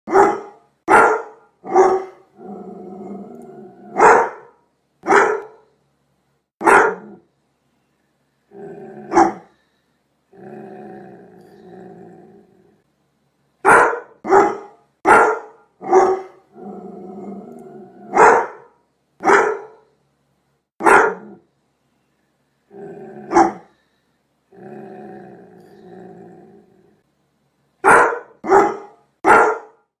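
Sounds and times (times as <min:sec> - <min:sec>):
dog barking: 0:00.1 - 0:02.2, 0:03.9 - 0:05.7, 0:06.6 - 0:07.2, 0:09.1 - 0:09.5, 0:13.6 - 0:16.4, 0:18.1 - 0:19.9, 0:20.8 - 0:21.4, 0:23.3 - 0:23.7, 0:27.8 - 0:29.8
dog growling: 0:02.3 - 0:04.0, 0:08.5 - 0:09.5, 0:10.3 - 0:12.8, 0:16.5 - 0:18.2, 0:22.7 - 0:23.7, 0:24.5 - 0:27.0.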